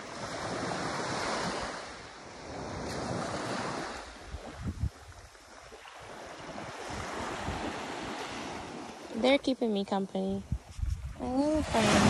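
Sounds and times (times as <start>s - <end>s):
small waves washing on sand: 0.0s - 12.0s
wind buffeting microphone: 2.4s - 8.9s, 9.5s - 12.0s.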